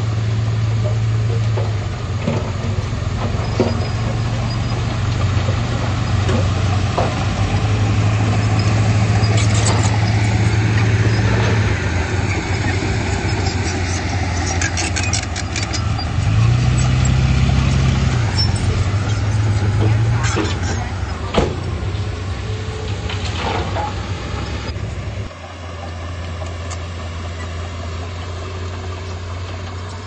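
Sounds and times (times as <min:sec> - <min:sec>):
bulldozer diesel engine running: 0:00.0 - 0:30.0.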